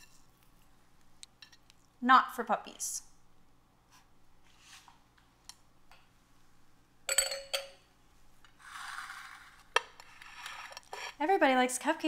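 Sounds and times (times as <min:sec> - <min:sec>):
soft rustle: 0:03.9 - 0:05.0
kitchenware clinking: 0:07.1 - 0:07.8.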